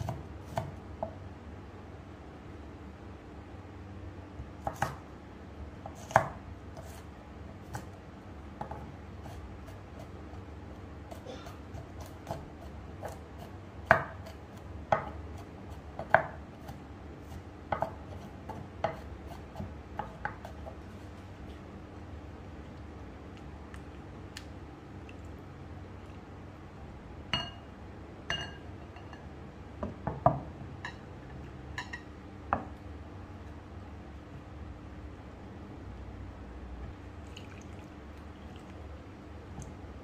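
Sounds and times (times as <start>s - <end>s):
knife chopping on wooden board: 0.0s - 1.2s, 4.6s - 5.0s, 5.8s - 7.0s, 11.8s - 20.8s.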